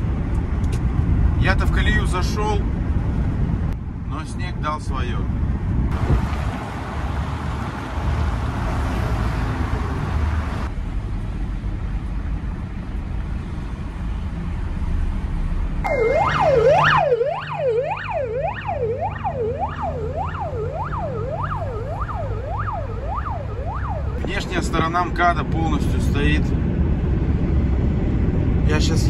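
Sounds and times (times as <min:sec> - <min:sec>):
emergency siren yelping: 0:15.8 - 0:24.3.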